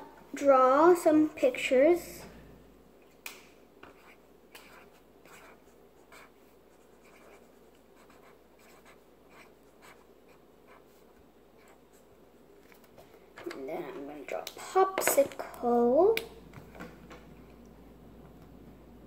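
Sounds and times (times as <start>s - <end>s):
marker scratching on paper: 3.8s - 12.1s.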